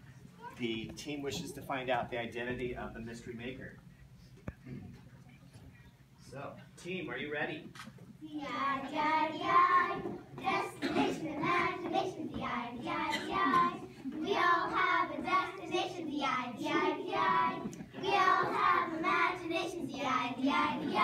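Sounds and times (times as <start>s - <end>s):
children chanting together: 8.4s - 21.0s.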